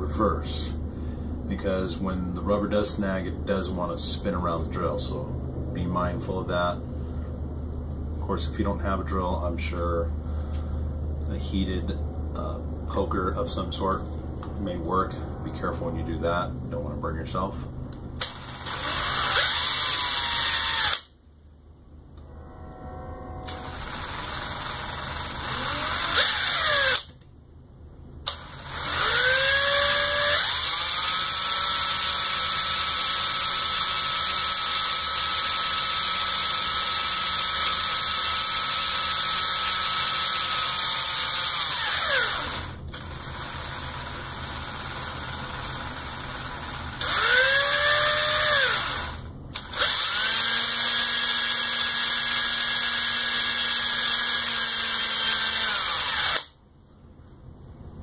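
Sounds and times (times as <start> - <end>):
cordless drill motor whine: 18.2 - 21.1, 23.5 - 27.1, 28.3 - 56.6.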